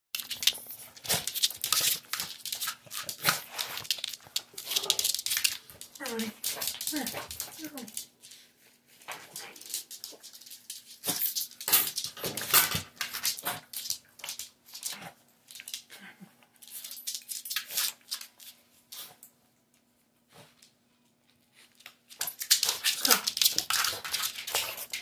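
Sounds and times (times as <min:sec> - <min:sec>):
dog claws clicking on wooden floor: 0:00.2 - 0:08.4, 0:09.1 - 0:15.9, 0:21.8 - 0:25.0.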